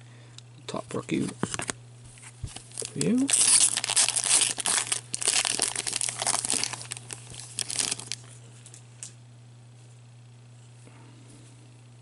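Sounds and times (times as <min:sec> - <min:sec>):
card pack wrapper crinkling: 0:02.4 - 0:08.4.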